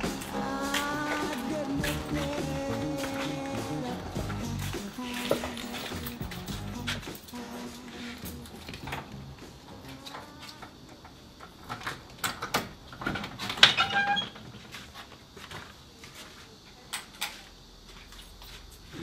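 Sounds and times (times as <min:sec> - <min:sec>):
door squeaking open: 0:13.4 - 0:14.5.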